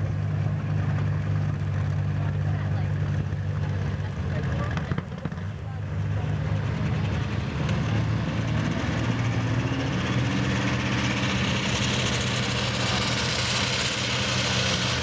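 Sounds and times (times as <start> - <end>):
tractor engine under load: 0.0 - 15.0
high rushing engine sound: 6.1 - 15.0.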